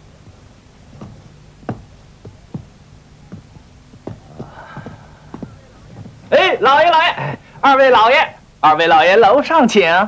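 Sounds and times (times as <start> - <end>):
faint steady hum: 0.0 - 10.0
footsteps on stone paving: 0.1 - 6.6.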